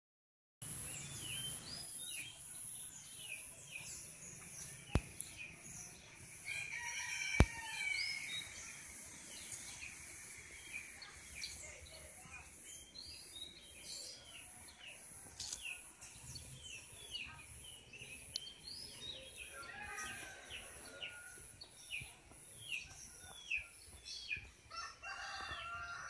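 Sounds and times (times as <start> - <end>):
small birds chirping: 0.6 - 26.0
rooster crowing: 6.4 - 8.4, 24.7 - 26.0.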